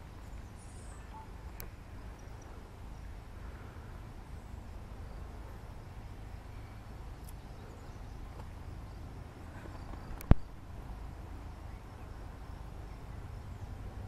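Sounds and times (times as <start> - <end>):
faint chirps: 0.2 - 5.6.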